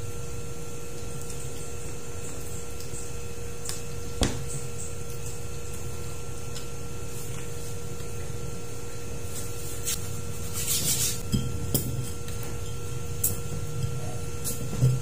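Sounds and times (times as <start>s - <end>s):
background hum: 0.0s - 15.0s.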